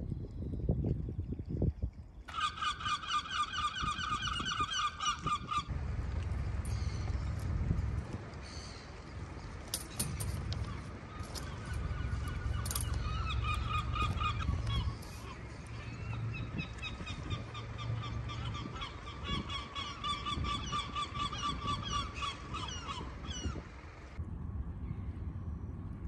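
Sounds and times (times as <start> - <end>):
low rumble: 5.6 - 19.7, 21.8 - 26.0.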